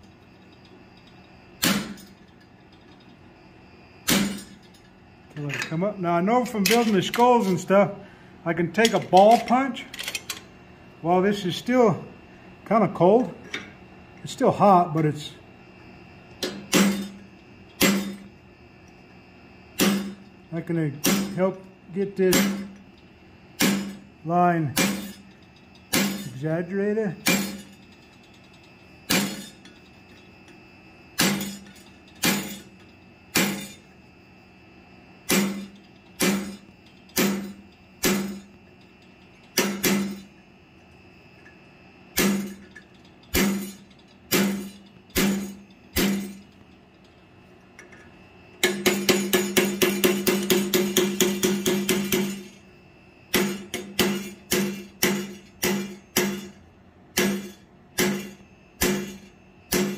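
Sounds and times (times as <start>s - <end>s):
hammer striking hot steel on anvil: 1.6s - 2.1s, 4.0s - 4.6s, 16.4s - 17.2s, 17.8s - 18.3s, 19.8s - 20.2s, 21.0s - 21.5s, 22.2s - 22.8s, 23.6s - 24.0s, 24.7s - 25.3s, 25.9s - 26.4s, 27.2s - 27.8s, 29.1s - 29.6s, 31.2s - 32.7s, 33.3s - 33.8s, 35.3s - 38.5s, 39.6s - 40.3s, 42.2s - 42.6s, 43.3s - 46.4s, 48.6s - 52.5s, 53.3s - 59.9s.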